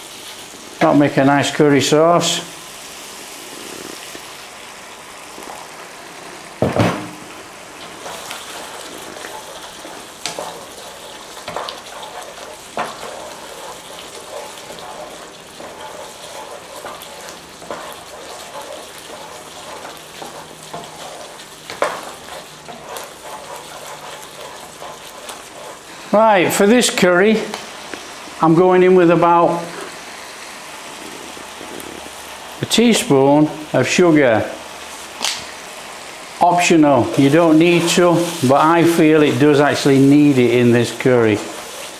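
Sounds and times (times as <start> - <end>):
sauce sizzling in a frying pan: 0.0 - 41.9
water pouring into pan: 4.9 - 26.2.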